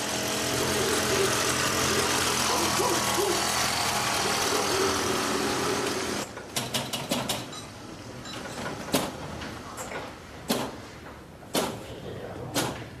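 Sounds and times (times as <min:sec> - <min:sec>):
moped engine running: 0:00.0 - 0:06.2.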